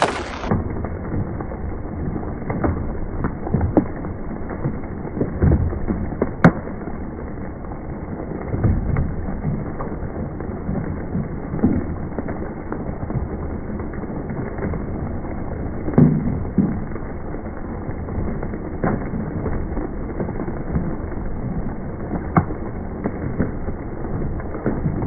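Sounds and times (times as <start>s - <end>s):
loud crack: 0.0s - 1.4s, 15.9s - 17.0s
hailstones knocking: 0.0s - 7.0s, 8.4s - 25.0s
hail hissing down: 0.0s - 25.0s.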